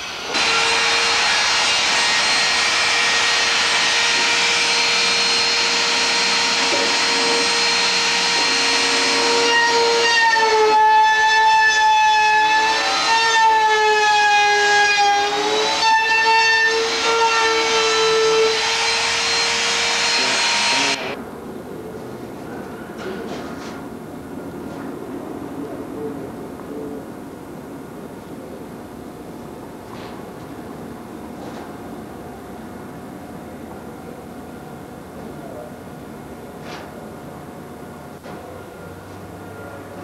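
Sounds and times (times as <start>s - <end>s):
electric router whining: 0.0s - 21.2s.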